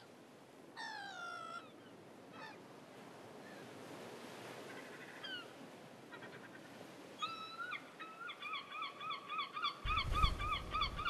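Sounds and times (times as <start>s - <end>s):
wind rumble on microphone: 9.8s - 11.0s.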